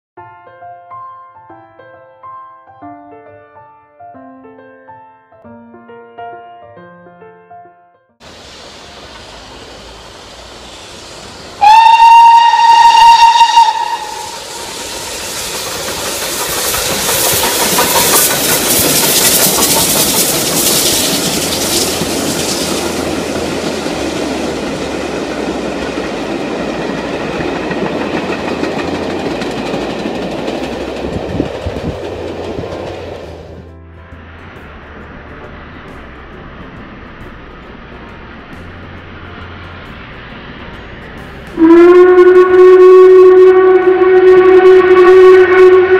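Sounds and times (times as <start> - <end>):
steam hissing: 8.2 - 33.6
train coaches rumbling and clacking: 8.2 - 45.9
steam locomotive whistle: 9.0 - 23.0, 41.5 - 45.9.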